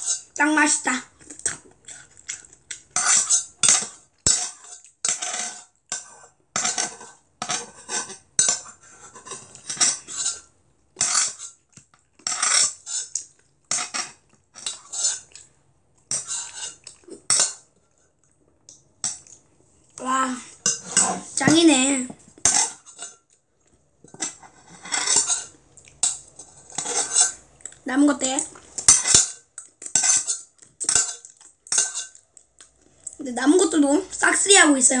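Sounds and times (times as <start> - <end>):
spoon scraping a pot: 0.0 - 0.9, 2.9 - 11.6, 12.2 - 15.4, 16.1 - 17.7, 20.6 - 21.6, 22.4 - 23.3, 24.0 - 27.6, 28.8 - 32.2.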